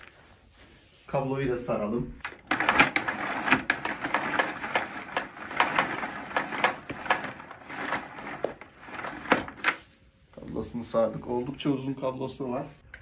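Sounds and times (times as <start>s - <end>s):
vacuum cord rewind rattling: 2.2s - 9.9s.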